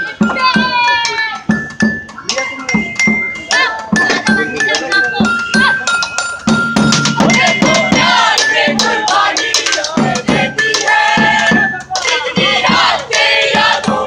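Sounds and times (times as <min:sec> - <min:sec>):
sharp drum strokes: 0:00.0 - 0:14.0
group of voices singing: 0:03.4 - 0:05.9, 0:06.8 - 0:14.0.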